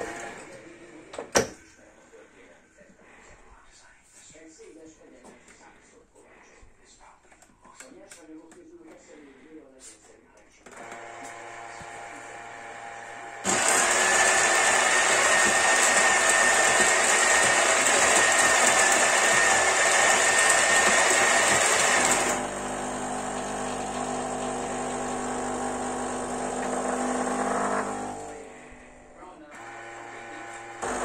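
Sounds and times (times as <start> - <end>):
coffee grinder grinding beans: 0.0 - 0.4, 10.8 - 28.7, 29.6 - 31.0
espresso machine hum: 10.9 - 28.7, 29.6 - 31.0.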